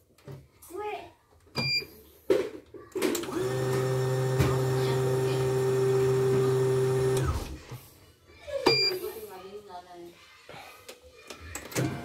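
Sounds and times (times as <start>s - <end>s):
embroidery machine motor running: 3.3s - 7.5s.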